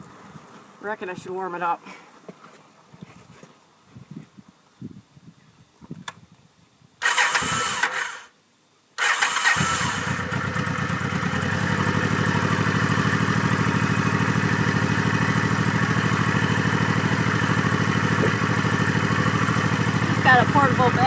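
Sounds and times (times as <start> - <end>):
motorcycle starter cranking: 7.0 - 8.3, 9.0 - 11.5
motorcycle engine idling: 9.8 - 21.0.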